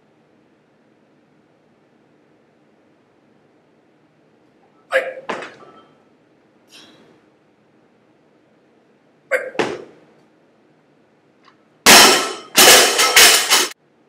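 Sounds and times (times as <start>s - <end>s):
barbell crashing on floor: 9.5s - 10.0s, 11.9s - 13.8s
barbell clanking: 11.9s - 13.8s.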